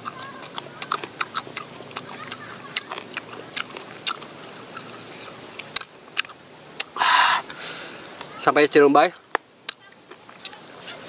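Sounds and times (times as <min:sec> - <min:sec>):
chewing with mouth clicks: 0:00.0 - 0:07.0, 0:09.7 - 0:10.6.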